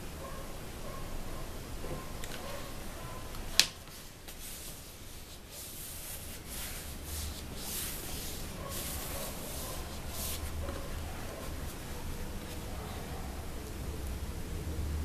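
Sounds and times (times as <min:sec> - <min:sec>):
hands rubbing craft foam: 0:03.8 - 0:12.7.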